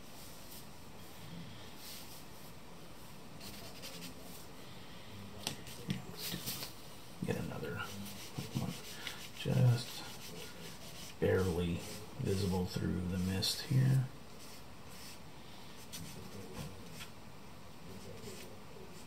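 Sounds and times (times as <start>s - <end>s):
charcoal scratching on paper: 3.4s - 4.4s, 7.6s - 13.3s, 13.9s - 15.2s.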